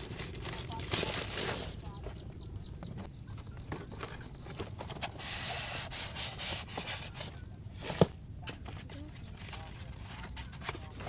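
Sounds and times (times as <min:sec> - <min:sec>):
cardboard rubbing and scraping: 0:03.7 - 0:11.0.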